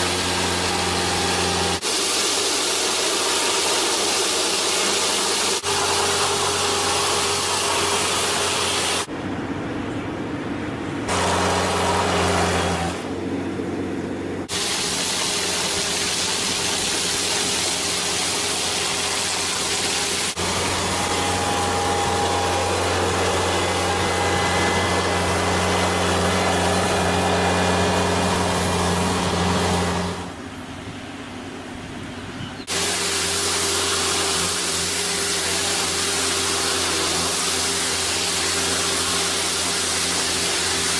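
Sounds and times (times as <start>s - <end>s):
vehicle engine running: 5.6s - 14.5s, 20.2s - 32.4s
brush scrubbing paving stones: 32.7s - 40.9s.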